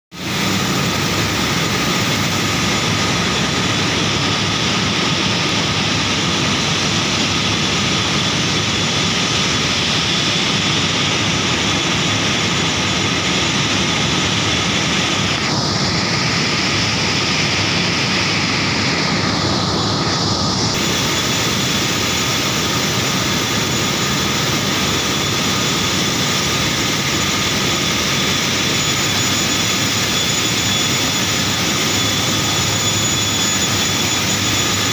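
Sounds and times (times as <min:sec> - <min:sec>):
industrial machine roar: 0:00.1 - 0:34.9
bright hiss: 0:20.8 - 0:25.6.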